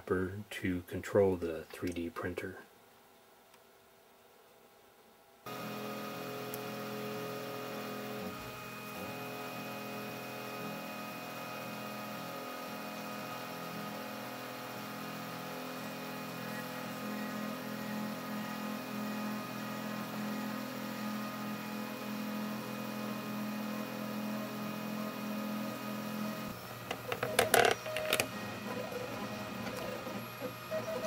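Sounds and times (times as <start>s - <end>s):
stepper motors whining: 12.7s - 31.0s.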